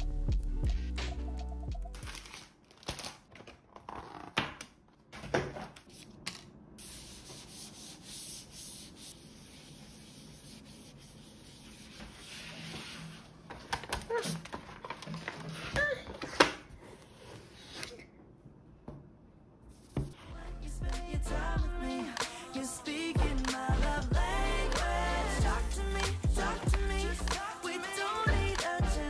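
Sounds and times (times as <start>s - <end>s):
cloth rubbing on metal: 6.8s - 13.3s.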